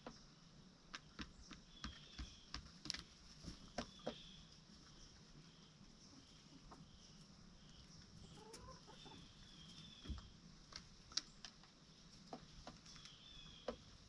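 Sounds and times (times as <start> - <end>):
chickens clucking: 0.9 - 14.0
chicken calls: 1.6 - 10.4.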